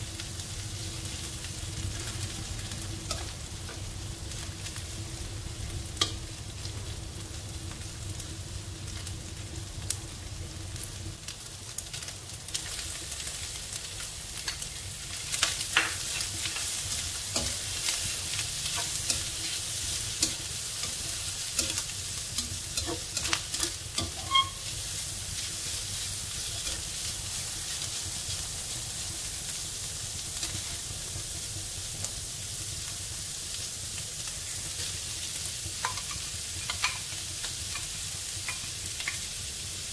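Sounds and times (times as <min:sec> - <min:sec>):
food sizzling in hot oil: 0:00.0 - 0:39.9
spatula scraping a wok: 0:16.0 - 0:28.4, 0:30.3 - 0:31.5
spatula clacking against pan: 0:18.6 - 0:24.6, 0:35.8 - 0:37.1, 0:37.7 - 0:39.3.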